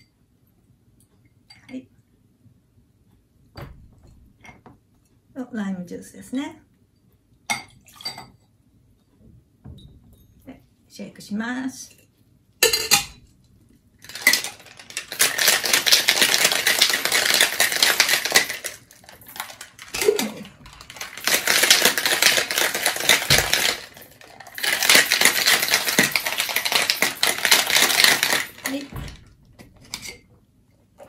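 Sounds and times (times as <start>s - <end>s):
ice rattling in a cocktail shaker: 14.0s - 29.2s.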